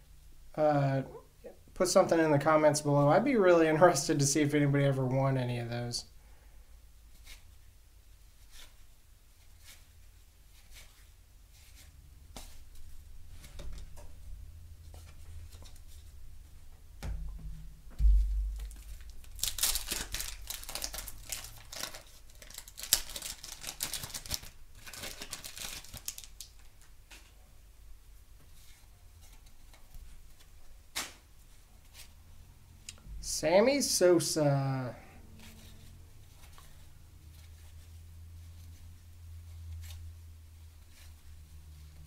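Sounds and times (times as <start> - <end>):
thump: 17.0 - 19.0
wrapper crinkling and tearing: 18.6 - 26.9.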